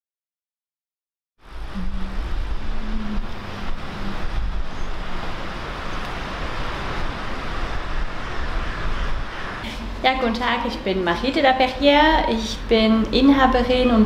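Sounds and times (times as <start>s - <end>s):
road traffic rumble: 1.4s - 14.0s
faint low hum: 1.6s - 6.4s.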